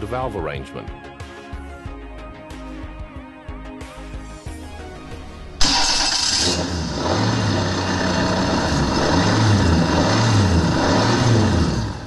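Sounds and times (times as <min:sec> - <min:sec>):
engine starting and running: 0:04.9 - 0:12.0.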